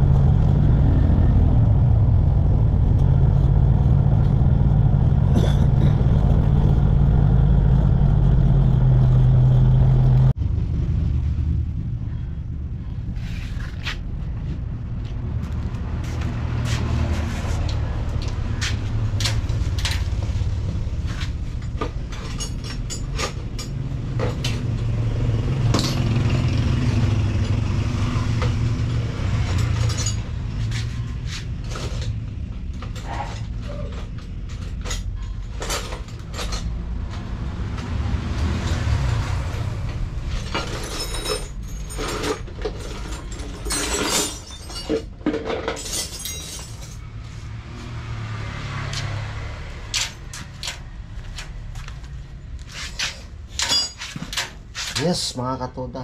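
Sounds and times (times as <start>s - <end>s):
sharp metallic clicks and knocks: 48.8s - 55.3s.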